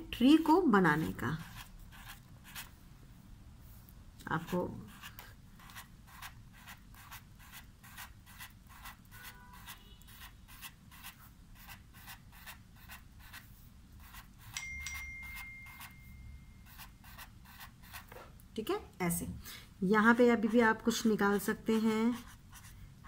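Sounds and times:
marker pen scratching paper: 0:00.8 - 0:02.7, 0:04.4 - 0:14.6, 0:16.7 - 0:18.3, 0:20.3 - 0:22.8
steady high tone: 0:14.5 - 0:17.0.

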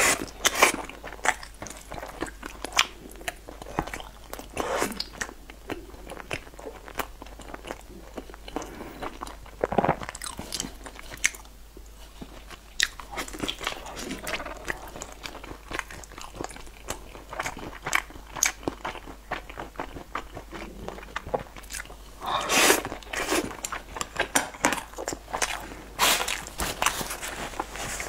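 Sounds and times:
biting and chewing meat: 0:12.2 - 0:28.0.

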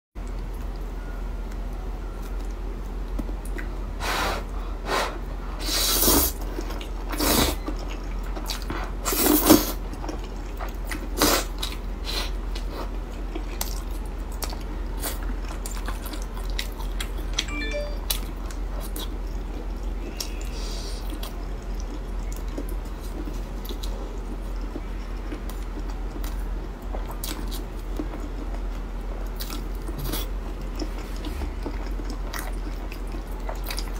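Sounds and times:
chewing and mouth clicks: 0:06.4 - 0:09.2, 0:09.8 - 0:11.9, 0:12.5 - 0:33.9.

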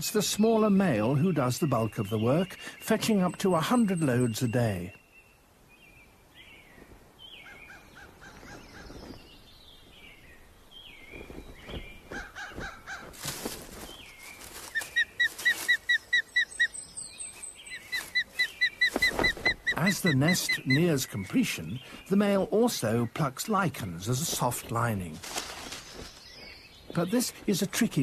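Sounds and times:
osprey calling: 0:10.1 - 0:28.0.

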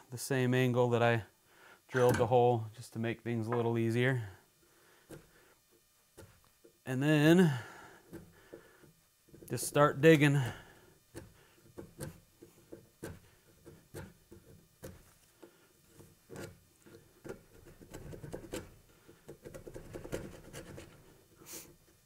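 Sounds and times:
broach scraping wood: 0:07.2 - 0:22.0.

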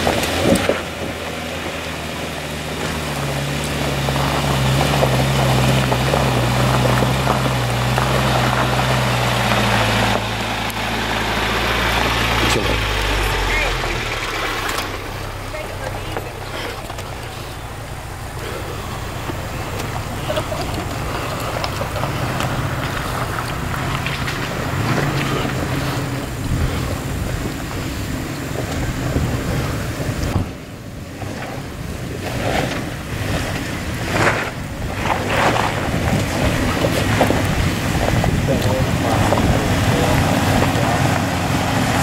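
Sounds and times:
off-road vehicle engine under load: 0:00.0 - 0:42.0
wind on microphone: 0:31.7 - 0:42.0.

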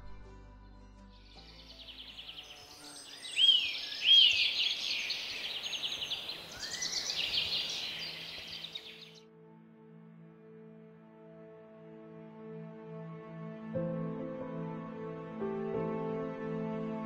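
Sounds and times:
soft background music: 0:00.0 - 0:17.0
birds chirping and chattering: 0:01.5 - 0:09.2.

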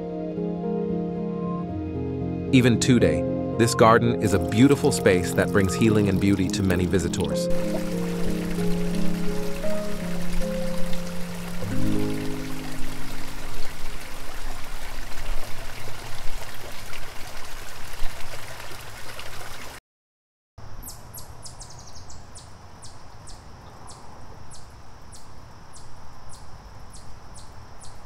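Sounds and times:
water rushing over rocks: 0:04.3 - 0:19.8.

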